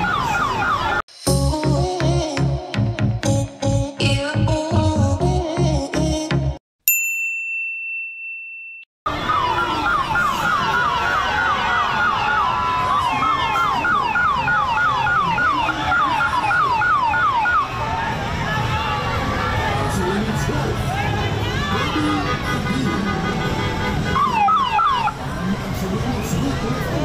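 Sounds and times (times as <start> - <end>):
crowd noise: 0.0 - 1.0, 9.1 - 27.0
siren yelping: 0.0 - 1.0, 9.1 - 17.8, 24.2 - 25.2.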